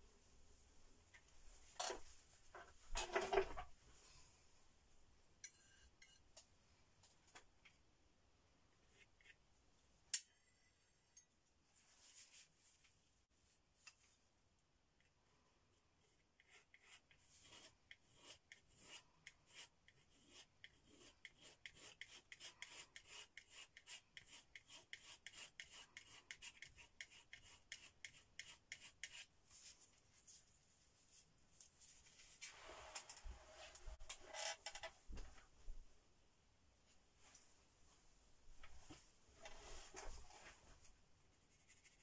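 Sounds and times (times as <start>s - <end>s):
palette knife scraping paint: 16.0s - 29.3s
rubbing sounds: 38.8s - 42.0s.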